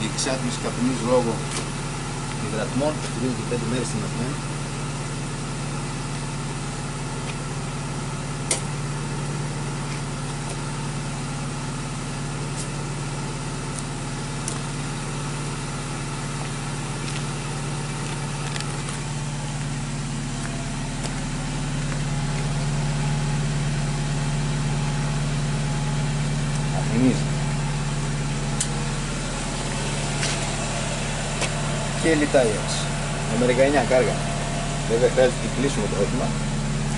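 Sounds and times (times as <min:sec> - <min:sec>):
car engine idling: 0:00.0 - 0:36.9
sharp click: 0:08.5 - 0:08.7.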